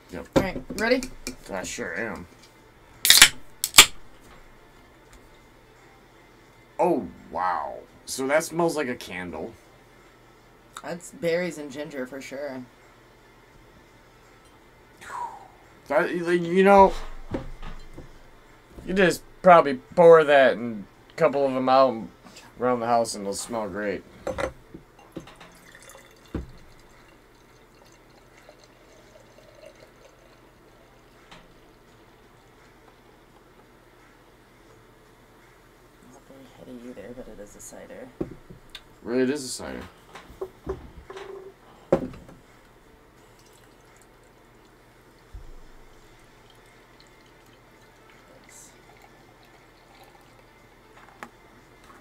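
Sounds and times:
liquid pouring into glass: 25.0 - 31.9, 43.2 - 45.3, 45.9 - 51.0.

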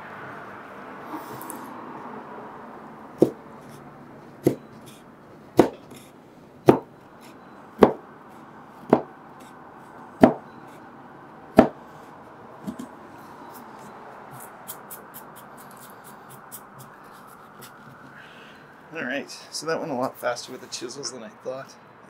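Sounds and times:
chisel striking wood: 3.2 - 3.4, 4.4 - 4.7, 5.6 - 6.0, 6.6 - 6.9, 7.8 - 8.0, 8.8 - 9.1, 10.2 - 10.4, 11.6 - 11.8.

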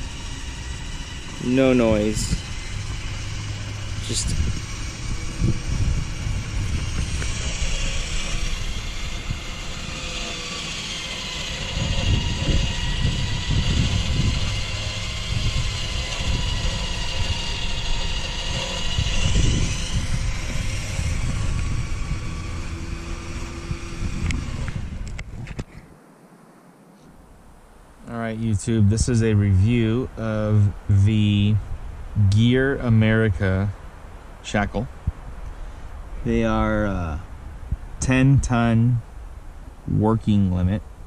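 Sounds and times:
electric winch whining: 0.0 - 25.7
low rumbles: 0.0 - 25.9, 27.1 - 41.0.

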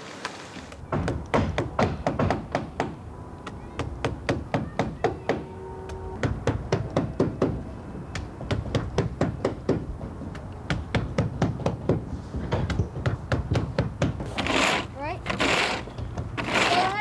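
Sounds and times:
hammers tapping: 0.9 - 14.4.

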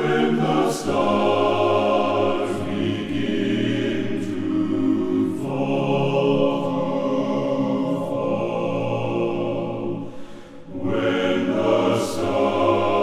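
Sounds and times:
men's choir singing: 0.0 - 13.0.

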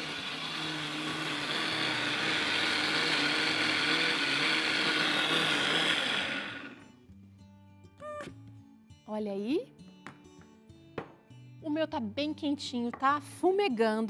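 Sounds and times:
blender running: 0.0 - 6.8.

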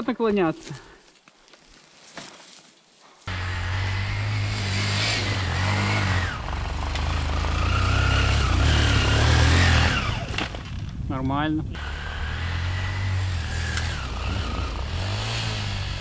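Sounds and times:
motorcycle engine revving: 3.3 - 10.6, 11.8 - 16.0.

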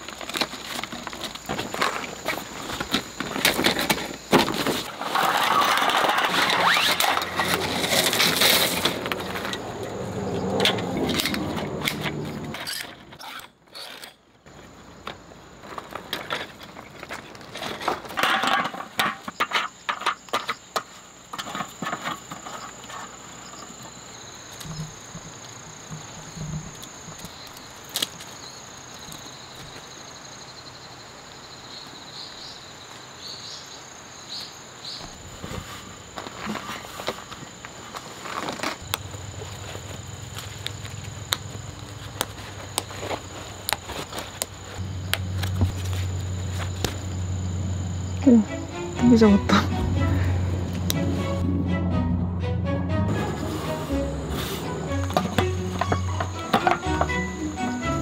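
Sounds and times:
camp furniture being handled: 0.0 - 28.3, 34.9 - 47.5, 53.1 - 57.8
insects chirring: 0.0 - 51.4, 53.1 - 58.0.

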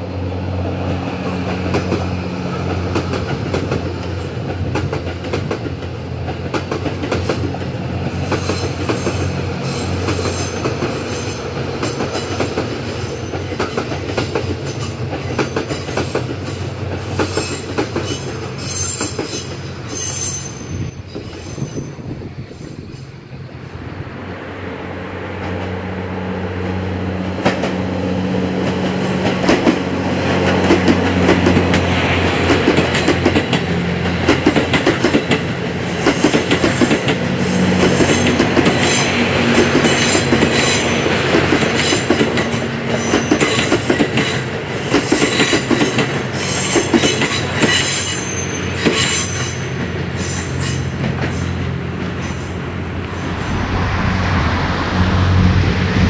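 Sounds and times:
diesel train engine drone: 0.0 - 56.0
wheels squealing: 14.5 - 23.8, 37.4 - 56.0.

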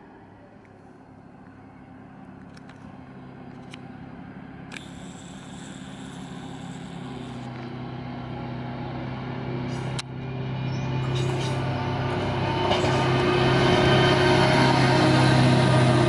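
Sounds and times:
diesel engine running: 1.6 - 16.0
sharp ticks: 4.7 - 7.7.

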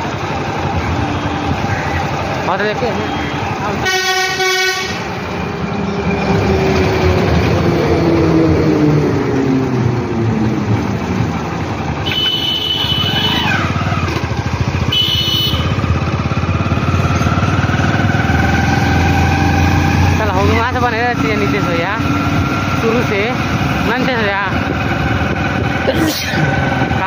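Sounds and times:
vehicle engine and road noise: 0.0 - 27.0
horn blaring: 0.6 - 5.6, 11.9 - 16.7.

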